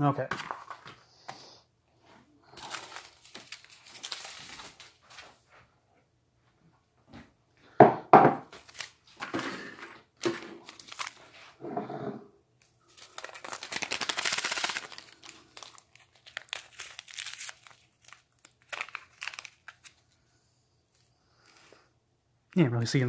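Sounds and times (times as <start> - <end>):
foil packets crinkling: 2.4 - 5.3, 8.6 - 9.1, 10.2 - 11.3, 12.7 - 20.2
foil pouch tearing: 2.6 - 4.8, 10.6 - 11.2, 12.9 - 20.0
mug knocking on wooden table: 7.8 - 8.4.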